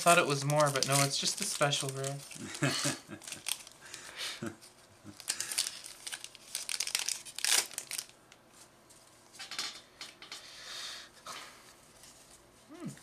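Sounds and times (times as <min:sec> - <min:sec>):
foil wrapper crinkling and tearing: 0:00.0 - 0:04.1, 0:05.1 - 0:08.2.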